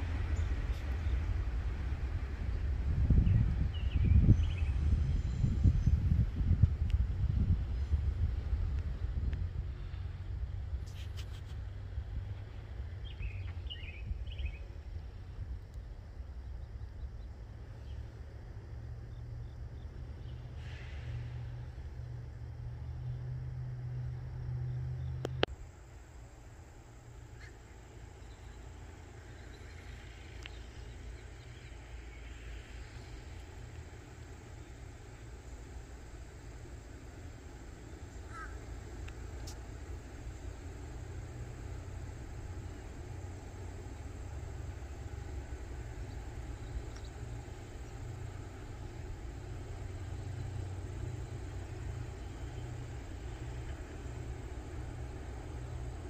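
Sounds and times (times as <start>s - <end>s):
low engine rumble: 0.0s - 56.0s
light hiss: 20.2s - 22.2s, 25.3s - 56.0s.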